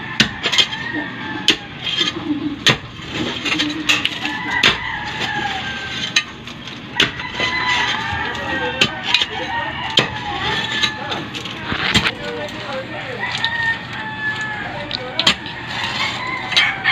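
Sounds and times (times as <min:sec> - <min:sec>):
digging blade striking stony soil: 0:07.0 - 0:07.6, 0:11.6 - 0:12.4.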